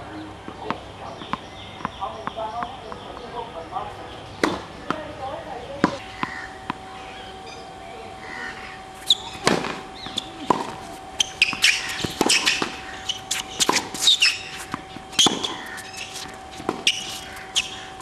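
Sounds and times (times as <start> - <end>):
birds chirping: 0.0 - 18.0
tennis ball bouncing: 0.5 - 3.3, 4.4 - 6.9, 9.0 - 17.9
tennis racket hitting ball: 4.4 - 5.1, 9.0 - 17.9.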